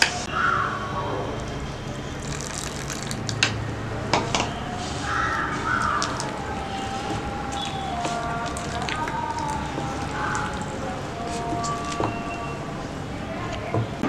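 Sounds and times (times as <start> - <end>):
water pouring into a bowl: 2.1 - 3.4, 5.3 - 12.3
spoon stirring batter: 4.2 - 13.7.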